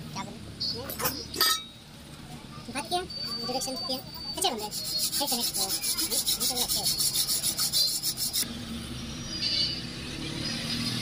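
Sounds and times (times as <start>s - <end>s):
hand file rasping on steel: 4.4s - 8.4s.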